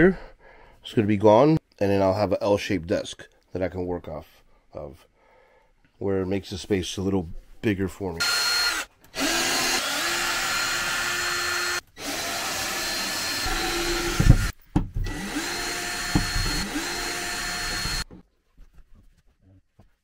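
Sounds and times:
power drill whining: 8.2s - 18.2s
sharp knocks: 16.1s - 16.6s.

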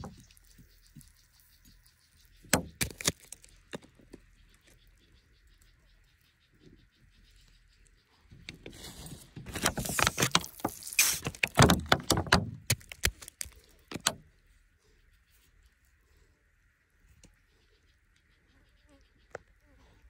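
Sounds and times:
small stones clicking: 2.5s - 4.2s, 9.5s - 14.1s
pebbly soil scraping: 8.6s - 14.0s.

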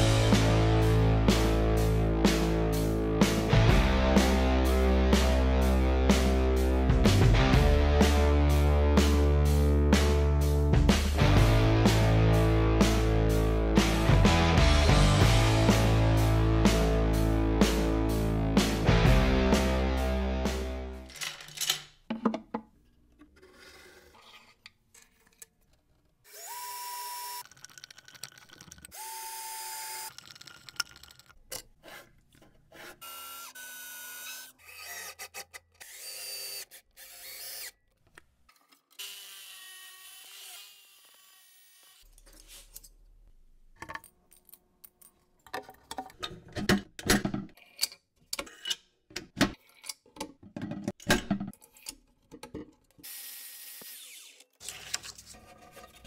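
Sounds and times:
cordless drill driving screws: 26.3s - 27.4s, 28.9s - 30.2s, 33.0s - 37.8s, 53.1s - 54.5s
knocks and clicks: 45.4s - 47.6s, 49.1s - 51.6s.

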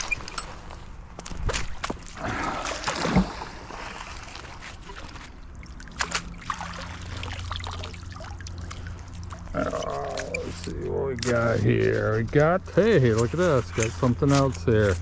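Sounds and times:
magnet splashing into water: 1.4s - 3.9s.

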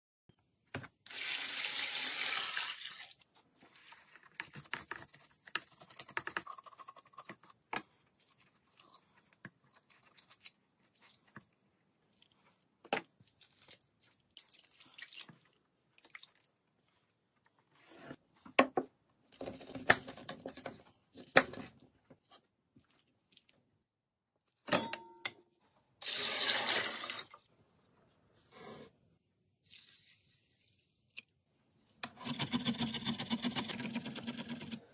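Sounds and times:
water rushing into basin: 26.0s - 27.4s.

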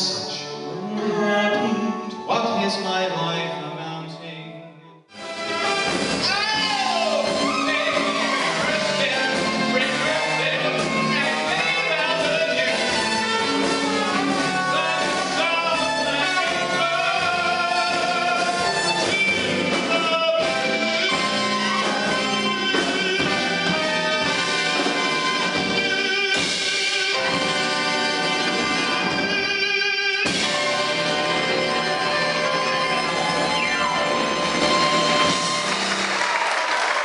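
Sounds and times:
man singing: 0.0s - 5.0s, 6.2s - 24.6s
instrumental accompaniment: 0.0s - 37.0s.

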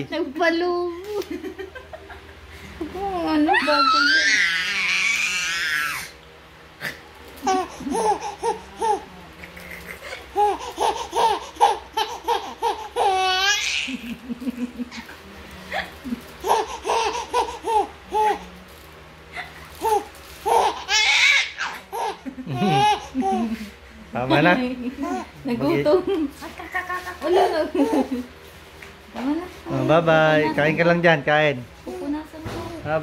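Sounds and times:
baby squealing: 3.5s - 6.1s, 9.7s - 13.9s, 19.8s - 23.0s
baby laughing: 6.8s - 15.2s, 16.0s - 18.5s, 19.4s - 23.7s.

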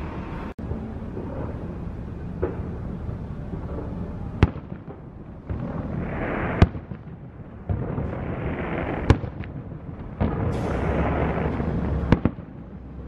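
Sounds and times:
rumbling background: 0.0s - 13.0s
fireworks bursting: 1.0s - 13.0s.

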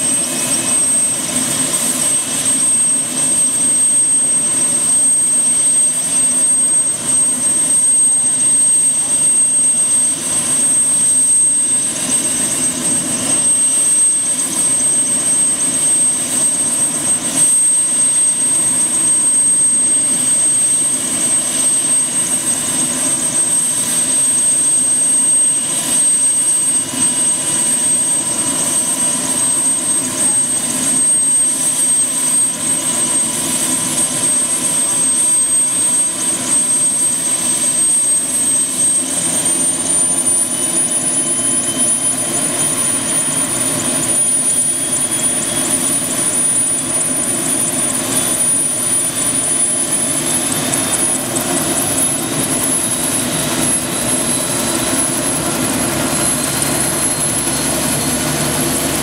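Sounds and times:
helicopter engine whine: 0.0s - 59.0s
helicopter rotor turning: 0.0s - 59.0s.

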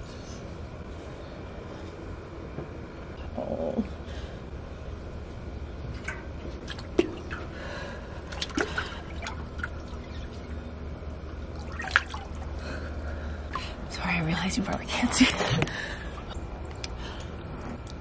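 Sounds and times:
water sloshing and dripping in tub: 5.8s - 18.0s
knocks and splashes: 5.9s - 7.5s, 8.2s - 10.5s, 11.5s - 12.5s.

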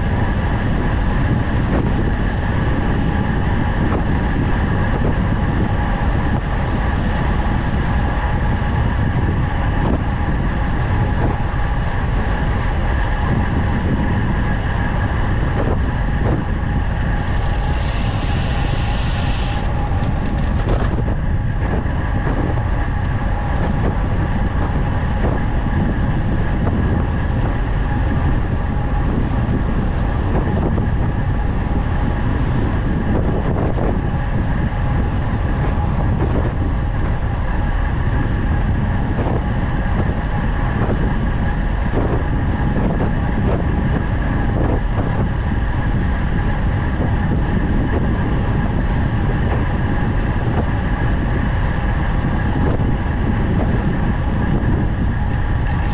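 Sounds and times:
bike tyres rolling on asphalt: 0.0s - 55.9s
wind rushing over microphone: 0.0s - 55.9s
high hiss: 17.2s - 19.8s.

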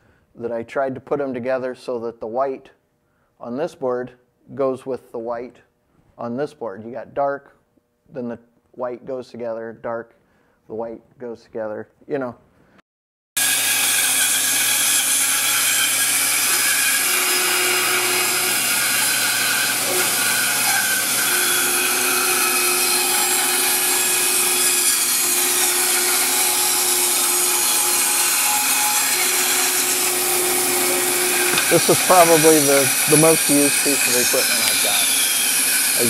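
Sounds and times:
band saw blade rasping wood: 13.4s - 36.0s
machine hum: 21.0s - 35.3s.

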